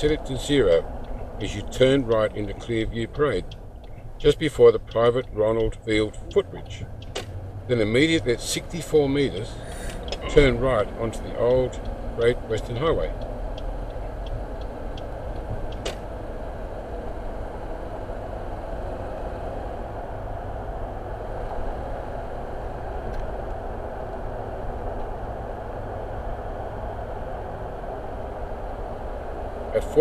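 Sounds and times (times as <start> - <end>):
car road and engine noise: 0.0 - 30.0
sharp click: 15.7 - 16.1.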